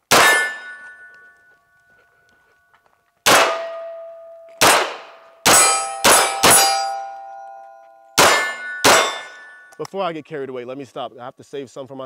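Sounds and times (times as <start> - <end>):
steel target ringing: 0.0 - 1.8, 3.3 - 9.8
gunshots: 0.1 - 0.8, 3.2 - 4.0, 4.6 - 7.1, 8.2 - 9.5.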